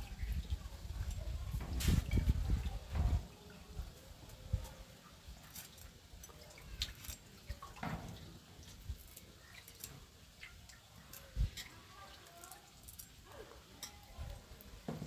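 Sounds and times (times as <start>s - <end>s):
dried fish crackling on a blade: 5.4s - 7.4s, 8.8s - 10.1s, 10.8s - 14.7s.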